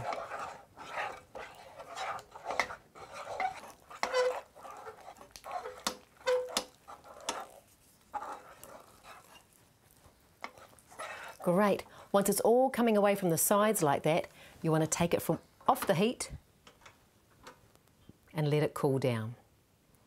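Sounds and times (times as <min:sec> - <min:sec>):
spoon scraping thick mixture: 0:00.0 - 0:14.0.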